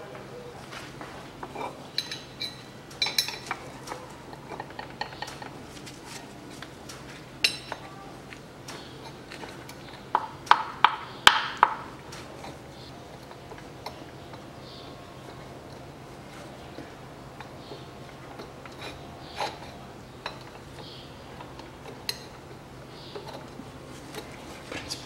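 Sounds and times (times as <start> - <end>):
metal tools clinking on metal: 1.4 - 5.6, 7.4 - 8.0, 12.1 - 25.0.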